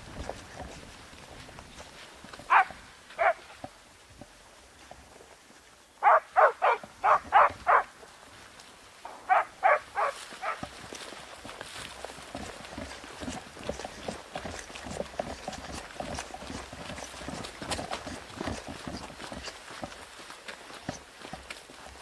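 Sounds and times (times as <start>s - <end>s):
dogs barking: 2.5s - 3.4s, 6.0s - 7.9s, 9.2s - 10.6s.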